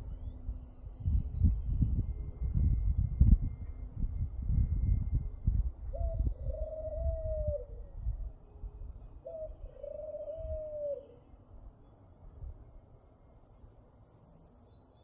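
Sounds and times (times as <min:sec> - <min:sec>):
low rumble on microphone: 0:00.0 - 0:09.0.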